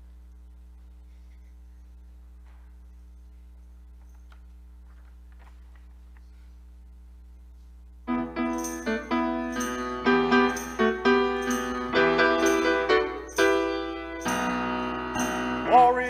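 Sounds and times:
low steady hum: 0.0s - 16.0s
grand piano playing: 8.1s - 16.0s.

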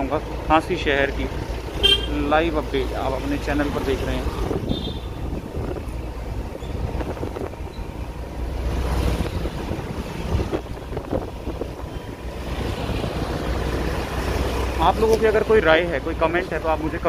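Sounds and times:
faint street traffic: 0.0s - 17.0s
wind buffeting microphone: 4.2s - 13.5s.

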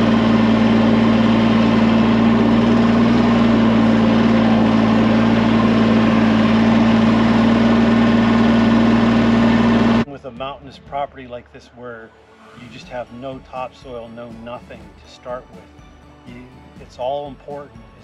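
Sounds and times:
tractor engine running: 0.0s - 10.1s.

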